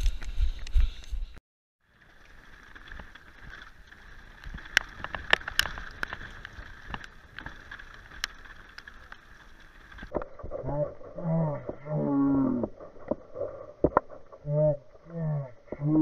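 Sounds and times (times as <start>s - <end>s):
bike tyres hissing on dirt: 0.0s - 10.1s
bike rattling over bumps: 1.8s - 14.3s.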